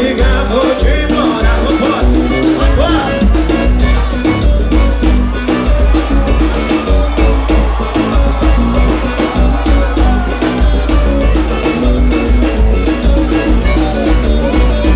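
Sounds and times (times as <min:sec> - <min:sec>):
drum kit beat: 0:00.0 - 0:14.9
live band playing upbeat music: 0:00.0 - 0:14.9.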